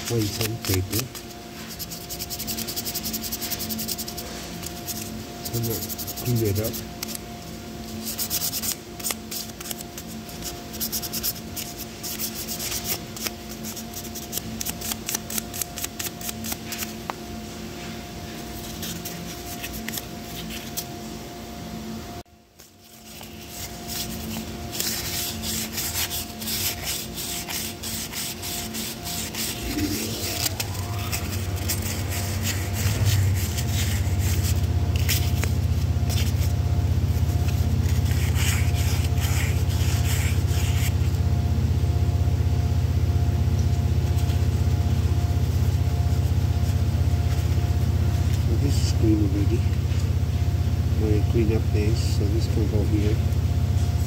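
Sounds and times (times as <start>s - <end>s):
sandpaper scratching on metal: 0.0s - 7.2s, 8.0s - 16.6s, 23.1s - 35.3s, 37.8s - 40.9s
low steady hum: 0.0s - 54.0s.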